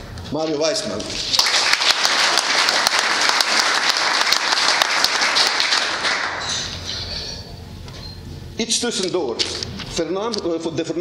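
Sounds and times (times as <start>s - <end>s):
audience applauding: 1.2s - 6.8s.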